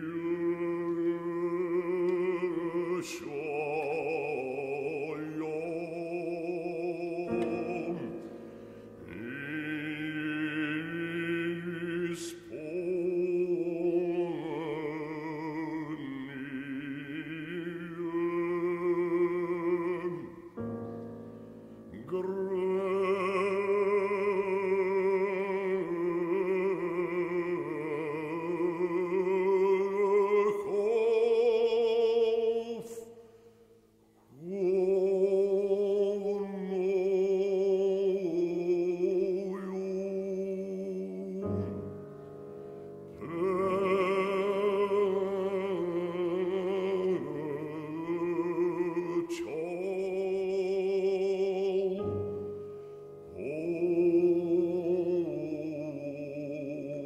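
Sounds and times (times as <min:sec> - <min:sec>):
operatic bass voice singing: 0:00.0 - 0:08.2
piano: 0:00.0 - 0:57.0.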